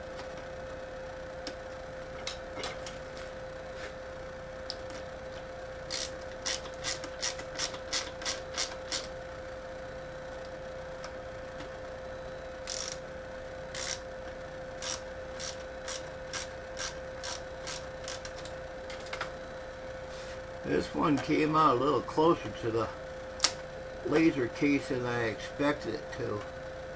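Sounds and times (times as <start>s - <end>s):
steady hum: 0.0s - 26.9s.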